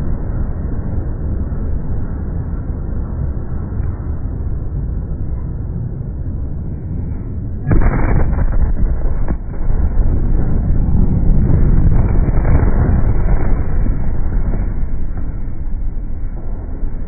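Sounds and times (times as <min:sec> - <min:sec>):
deep explosion rumble: 0:00.0 - 0:17.0
loud explosion blast: 0:07.6 - 0:17.0
sharp cracks: 0:07.7 - 0:17.0.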